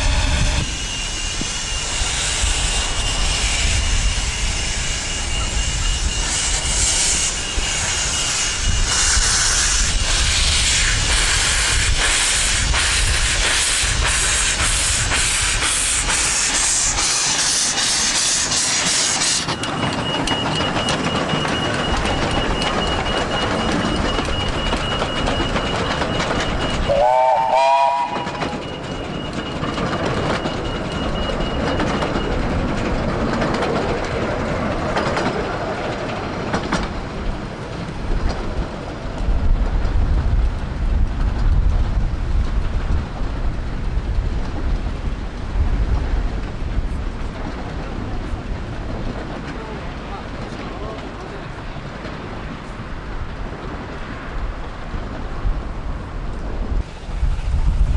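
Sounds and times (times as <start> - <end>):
steam hissing: 0.0 - 20.3, 23.0 - 28.6
train rumbling: 0.0 - 57.9
steam whistle blast: 26.9 - 28.6.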